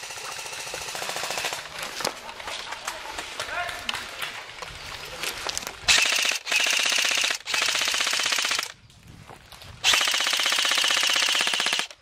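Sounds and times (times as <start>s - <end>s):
airsoft rifle firing bursts: 0.0s - 1.7s, 5.9s - 8.7s, 9.8s - 12.0s.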